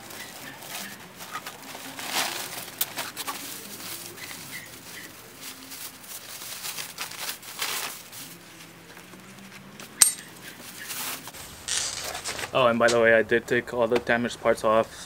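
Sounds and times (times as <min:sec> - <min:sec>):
plastic tarp rustling: 0:00.0 - 0:09.6, 0:10.6 - 0:13.0.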